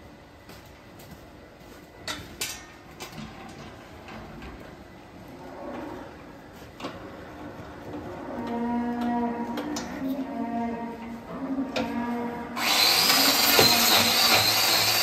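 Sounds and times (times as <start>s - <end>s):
low barn ambience: 0.0s - 15.0s.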